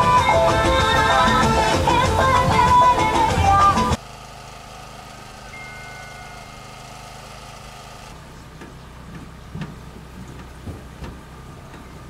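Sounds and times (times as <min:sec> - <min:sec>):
boat diesel engine humming: 0:00.0 - 0:12.0
boat moving on river: 0:00.0 - 0:12.0
thin high tone: 0:05.3 - 0:08.1.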